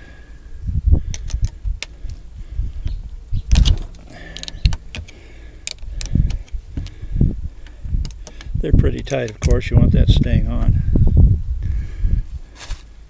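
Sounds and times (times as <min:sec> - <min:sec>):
wrench and metal parts clicking: 0:03.4 - 0:06.9, 0:07.6 - 0:09.7
metal clatter: 0:03.5 - 0:05.8.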